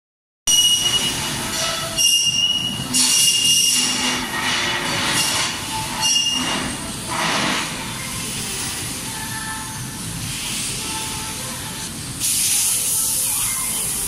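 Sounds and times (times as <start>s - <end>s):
high-pitched squeal-like tone: 0.5s - 8.1s.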